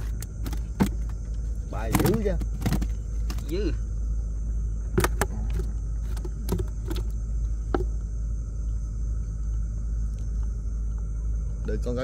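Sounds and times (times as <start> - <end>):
fish handling clicks and knocks: 0.0 - 3.5, 4.9 - 7.1.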